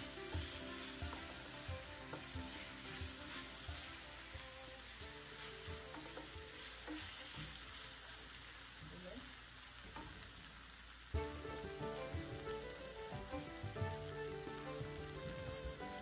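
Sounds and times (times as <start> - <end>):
wooden spatula scraping a pan: 0.0 - 8.6
chicken sizzling in hot oil: 0.0 - 16.0.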